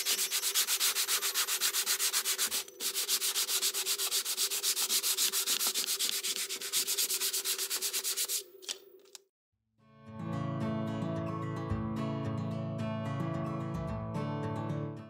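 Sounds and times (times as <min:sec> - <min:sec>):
brush scrubbing wood: 0:00.0 - 0:08.4.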